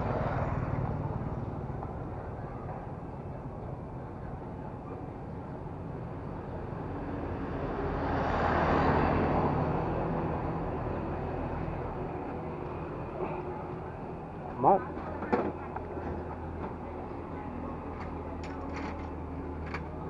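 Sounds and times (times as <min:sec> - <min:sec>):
steady traffic noise: 0:00.0 - 0:20.0
motor vehicle passing: 0:06.9 - 0:15.1.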